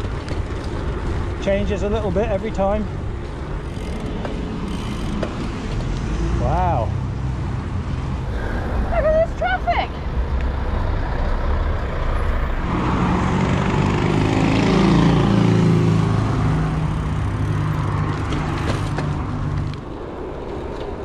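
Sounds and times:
vehicle engine passing by: 10.0s - 19.6s.

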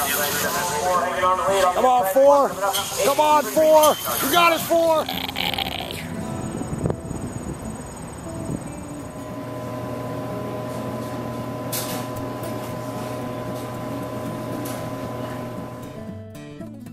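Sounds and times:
mechanical hum: 0.0s - 16.2s.

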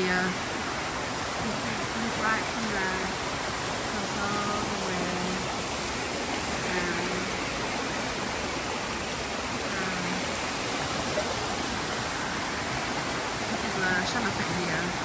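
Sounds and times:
waterfall splashing: 0.0s - 15.0s.

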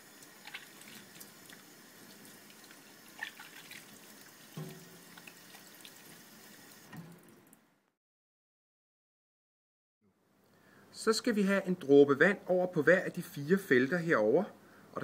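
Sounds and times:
tap water running into sink: 0.0s - 7.6s
hands rubbing and rinsing: 0.2s - 6.4s
small water splashes: 0.3s - 6.1s.

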